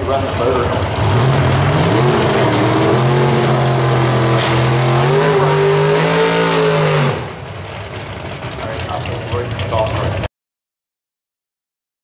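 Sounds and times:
car engine revving high: 0.7 - 7.5.

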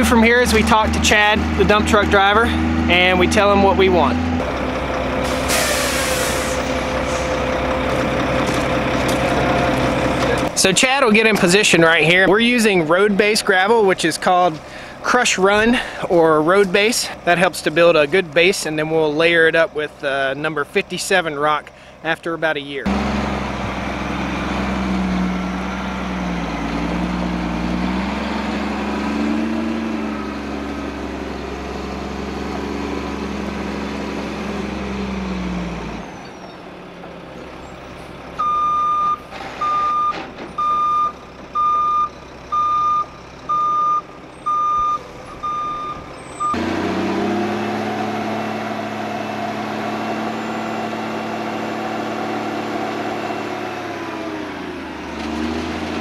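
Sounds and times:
truck diesel engine: 0.0 - 56.0
reversing alarm beeps: 38.4 - 46.6.

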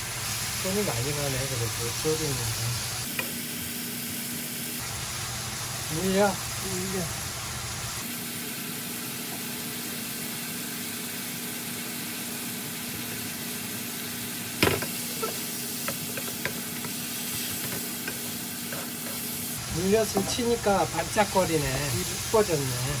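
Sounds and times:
food sizzling in a pan: 0.0 - 23.0
wooden spatula knocking pan: 14.6 - 17.0.

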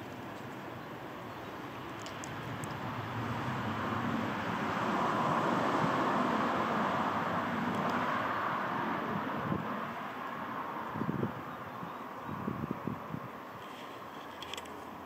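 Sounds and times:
wind gusts on microphone: 2.3 - 13.6.

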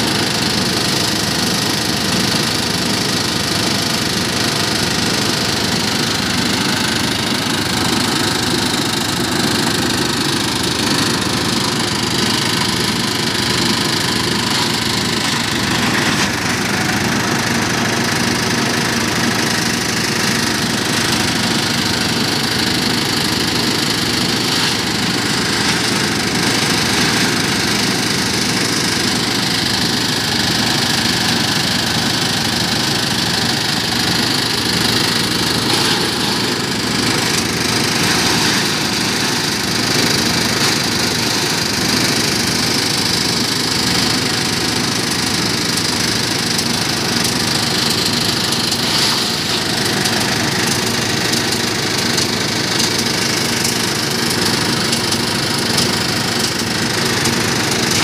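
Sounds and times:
diesel engine running: 0.0 - 58.0
branch chopper rotor whirring: 45.6 - 58.0
branches being shredded: 48.8 - 50.9.

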